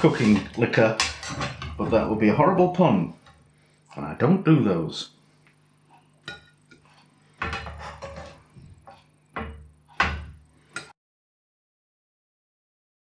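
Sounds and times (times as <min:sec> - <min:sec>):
spatula scraping a frying pan: 0:00.0 - 0:02.2, 0:06.3 - 0:09.0.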